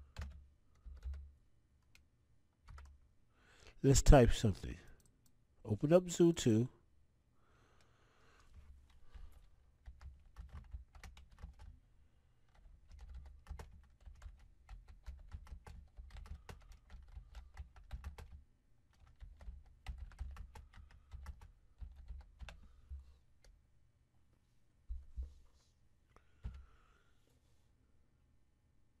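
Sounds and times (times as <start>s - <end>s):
computer keyboard typing: 0.0s - 2.0s, 2.6s - 3.0s, 9.3s - 11.8s, 12.5s - 22.6s.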